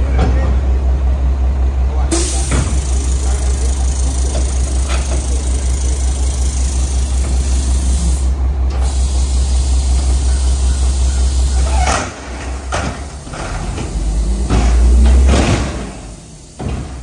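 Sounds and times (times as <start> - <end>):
garbage truck diesel engine drone: 0.0 - 17.0
hydraulic hiss: 2.1 - 11.8, 15.9 - 17.0.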